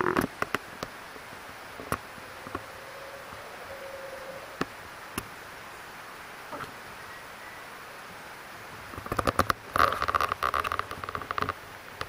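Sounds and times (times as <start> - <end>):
faint insect buzz: 0.0 - 8.0
forest ambience hiss: 0.0 - 12.0.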